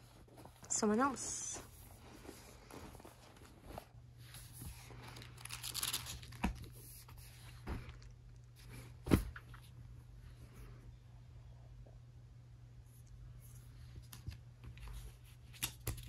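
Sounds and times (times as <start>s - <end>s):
notebook rustling and handling: 0.0s - 8.0s.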